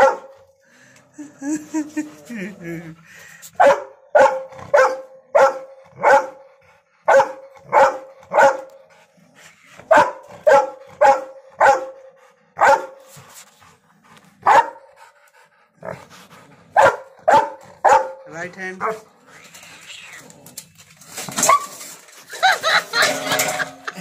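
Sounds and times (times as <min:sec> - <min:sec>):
large dog barking: 0:00.0 - 0:00.6, 0:03.6 - 0:09.1, 0:09.8 - 0:13.2, 0:14.4 - 0:15.1, 0:15.8 - 0:19.1.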